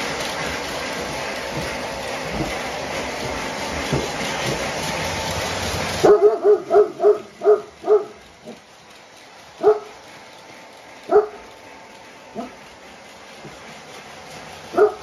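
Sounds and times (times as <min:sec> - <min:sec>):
dog barking: 0:06.0 - 0:08.6, 0:09.6 - 0:09.9, 0:11.1 - 0:11.4, 0:14.8 - 0:15.0.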